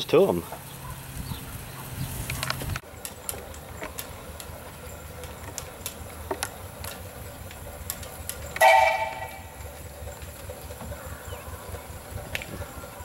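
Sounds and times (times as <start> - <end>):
low steady hum: 3.0 - 13.0
steam whistle blowing: 8.6 - 9.7.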